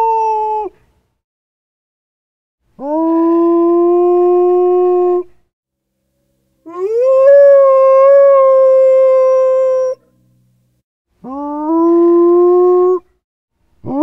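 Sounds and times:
dog howling: 6.7s - 10.0s, 11.3s - 13.0s.

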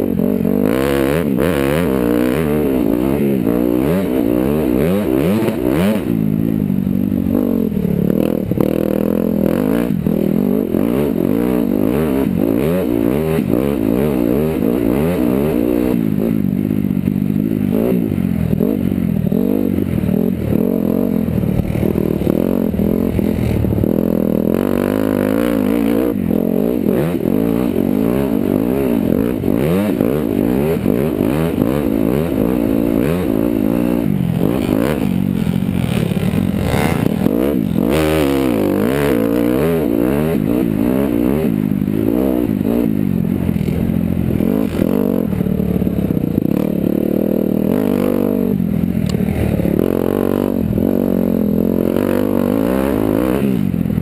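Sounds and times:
dirt bike engine revving: 0.0s - 54.0s
bike rattling: 30.8s - 38.6s.

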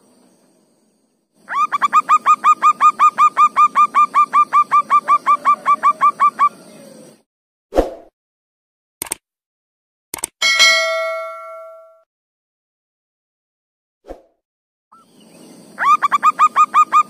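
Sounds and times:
dove cooing: 1.6s - 7.2s.

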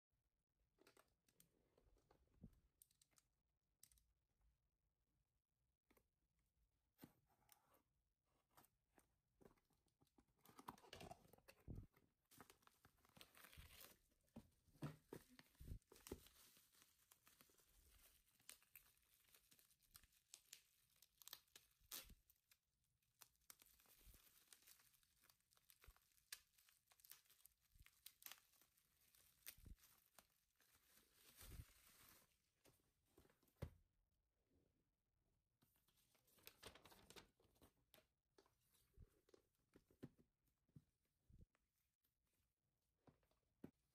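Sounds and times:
small clicks and taps: 0.8s - 4.1s
bubble wrap and paper crinkling: 12.2s - 14.4s, 15.0s - 32.6s, 35.9s - 37.8s.

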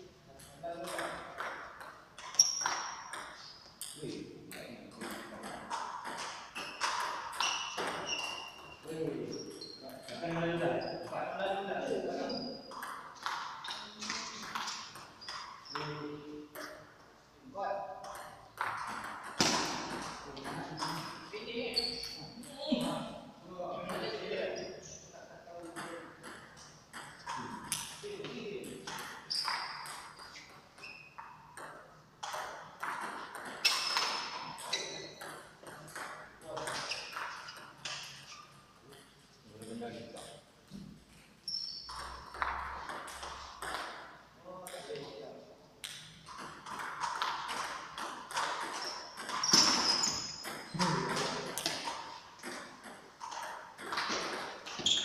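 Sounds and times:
table tennis ball strikes: 4.6s - 8.4s, 18.0s - 21.2s, 31.5s - 38.2s.

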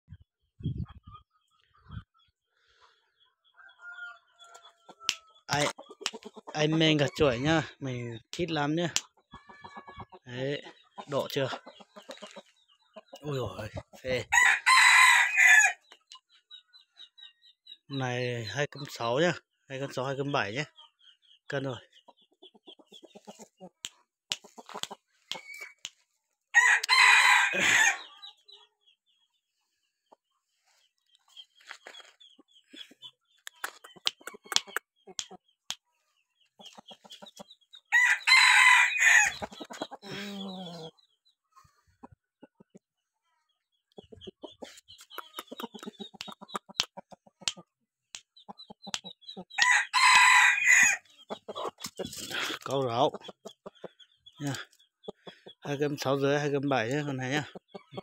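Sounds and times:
soft clucks: 4.2s - 14.2s, 18.0s - 26.2s, 30.0s - 37.8s, 39.4s - 43.0s, 43.7s - 49.7s, 51.0s - 58.0s
rooster crowing: 14.3s - 15.8s, 26.6s - 28.0s, 37.9s - 39.4s, 49.6s - 51.0s.

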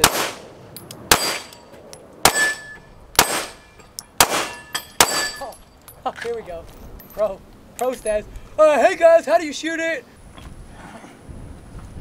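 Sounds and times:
handgun shots: 0.0s - 0.5s, 1.1s - 1.6s, 2.2s - 3.6s, 4.2s - 5.4s
steel plate ringing clang: 2.3s - 5.8s.

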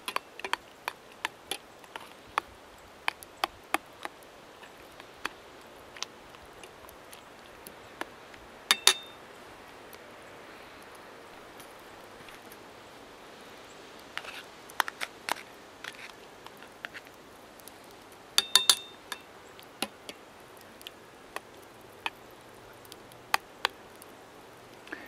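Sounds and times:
spoon clinking in metal saucepan: 8.7s - 9.2s, 18.4s - 19.3s.

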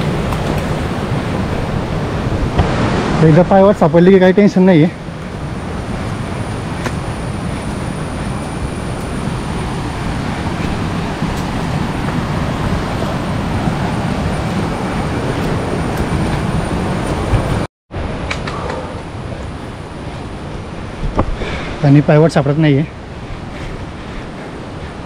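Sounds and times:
stream water rushing: 0.0s - 18.4s.

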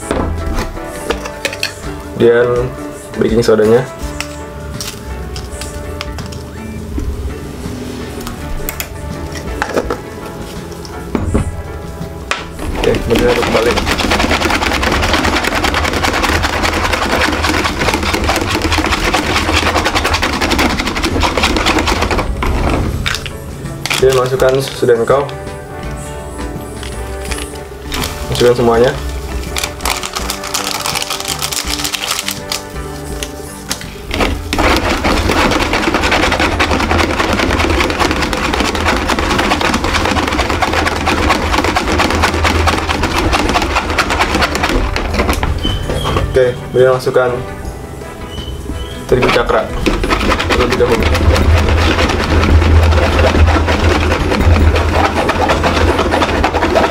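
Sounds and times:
whisk clattering in a metal bowl: 12.7s - 22.5s, 34.1s - 46.3s, 49.1s - 56.9s.

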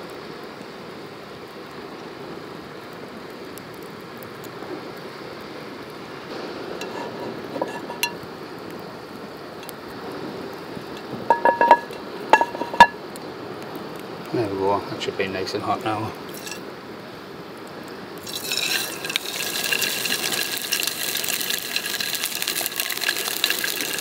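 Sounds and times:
campfire crackling and snapping: 0.0s - 24.0s
metal pan knocking on stones: 11.2s - 13.0s.

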